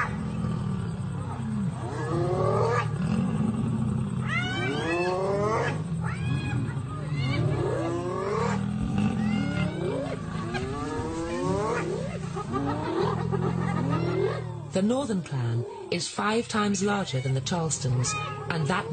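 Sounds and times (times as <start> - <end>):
lions growling: 0.0 - 16.0, 17.8 - 18.9
hyenas squealing cries: 4.2 - 14.7.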